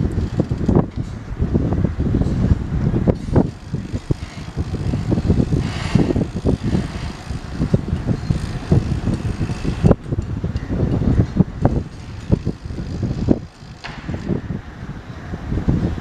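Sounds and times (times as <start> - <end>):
wind buffeting the microphone: 0.0 - 16.0.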